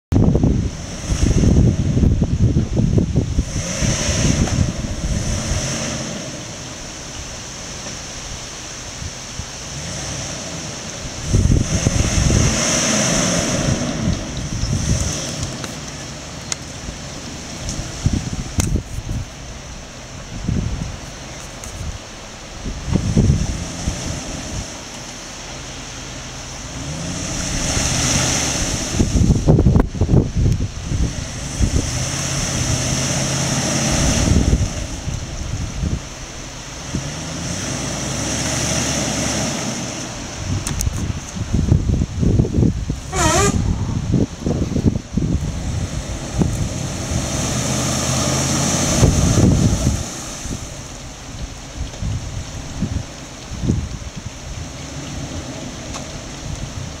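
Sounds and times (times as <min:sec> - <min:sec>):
wind buffeting microphone: 0:00.1 - 0:07.4, 0:11.0 - 0:24.9, 0:26.6 - 0:38.3, 0:39.0 - 0:57.0
truck engine under load: 0:00.1 - 0:57.0
tyres splashing in mud: 0:22.9 - 0:42.3, 0:45.2 - 0:57.0.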